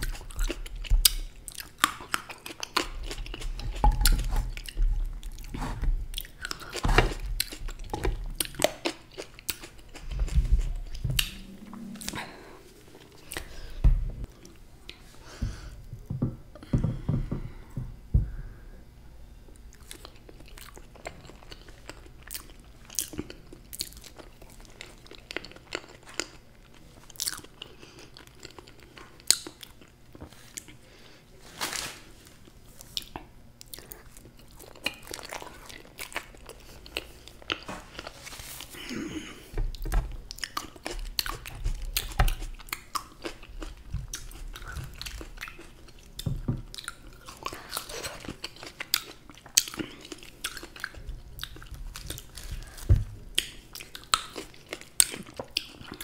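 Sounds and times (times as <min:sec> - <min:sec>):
wet biting and chewing: 0:00.0 - 0:12.4, 0:39.6 - 0:56.0
low thumps: 0:13.8 - 0:14.3.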